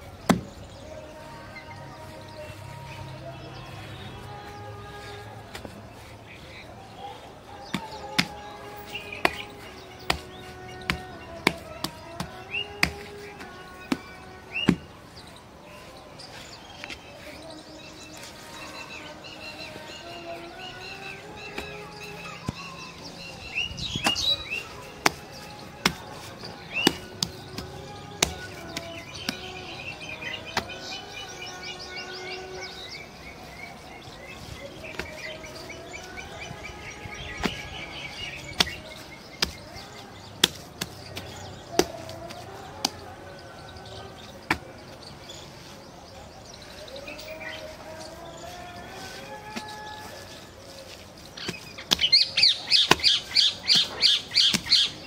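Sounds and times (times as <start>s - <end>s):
birds chirping and trilling: 0.0s - 55.0s
hands slapping wet dung: 7.7s - 14.9s, 24.0s - 30.9s, 37.3s - 43.2s, 50.9s - 55.0s.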